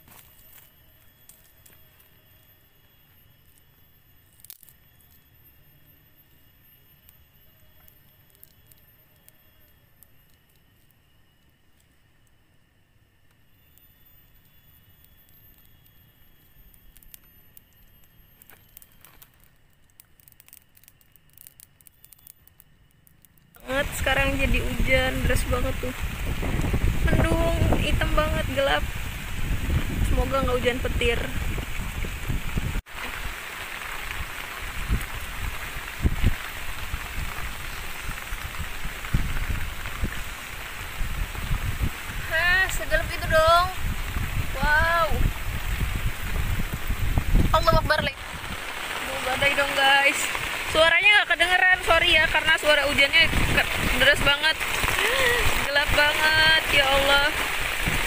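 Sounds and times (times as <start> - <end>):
sticks laid on a fire: 0.0 - 2.2, 13.2 - 24.1
small campfire crackling: 0.0 - 58.0
heavy rain pouring: 23.6 - 58.0.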